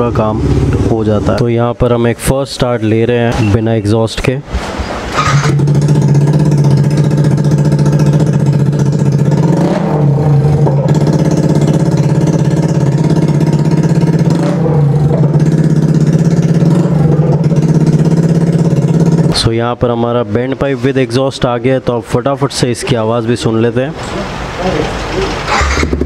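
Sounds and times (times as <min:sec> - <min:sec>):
motorcycle engine running loud: 0:00.0 - 0:01.5, 0:05.2 - 0:19.4, 0:25.5 - 0:26.0.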